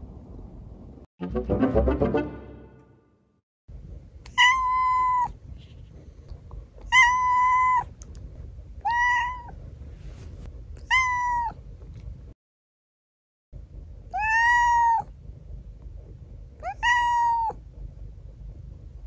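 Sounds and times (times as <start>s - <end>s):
cat meowing: 4.3s - 5.4s, 6.9s - 7.9s, 8.8s - 9.6s, 10.8s - 11.6s, 14.1s - 15.1s, 16.6s - 17.6s.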